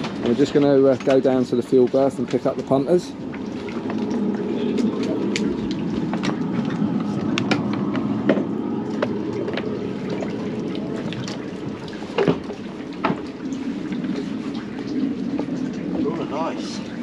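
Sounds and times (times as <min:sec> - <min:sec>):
water splashing at hull: 0:00.0 - 0:17.0.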